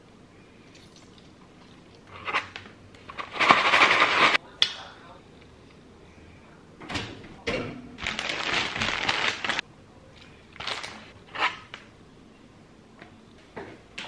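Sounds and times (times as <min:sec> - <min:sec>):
plastic bag crinkling: 0:08.0 - 0:09.6, 0:10.6 - 0:11.1.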